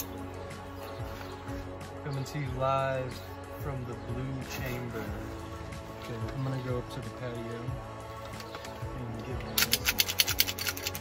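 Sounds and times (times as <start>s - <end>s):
music with sustained notes: 0.0s - 11.0s.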